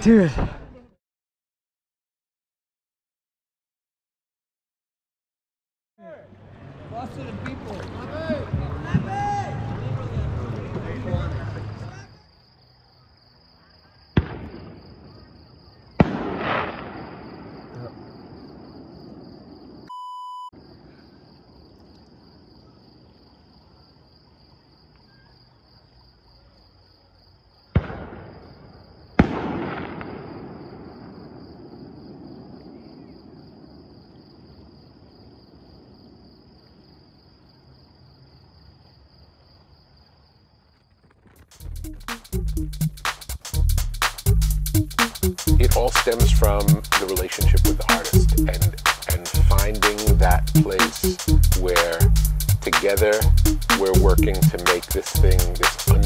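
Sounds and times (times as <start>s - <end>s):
insects trilling: 11.9s - 19.9s, 20.6s - 29.3s, 30.2s - 56.0s
fireworks booming: 14.1s - 19.9s, 27.7s - 36.4s
short beep: 19.9s - 20.6s.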